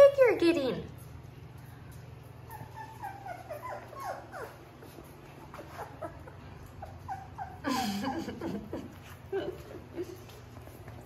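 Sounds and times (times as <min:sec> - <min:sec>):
puppies whimpering: 0:02.3 - 0:10.7.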